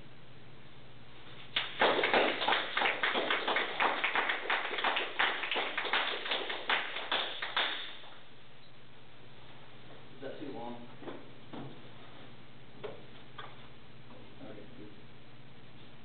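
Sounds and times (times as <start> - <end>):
small group clapping: 1.5 - 8.2.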